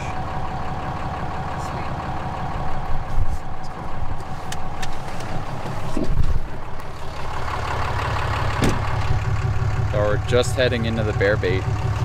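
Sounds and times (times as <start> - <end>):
truck engine and tyre rumble: 0.0 - 12.0.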